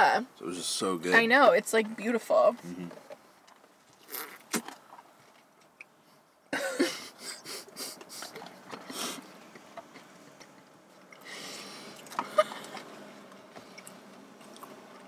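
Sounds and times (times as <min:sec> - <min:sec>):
short laugh: 0:06.5 - 0:09.2, 0:12.2 - 0:12.8
close-up eating sounds: 0:08.0 - 0:15.0
breathy bursts: 0:11.2 - 0:12.8.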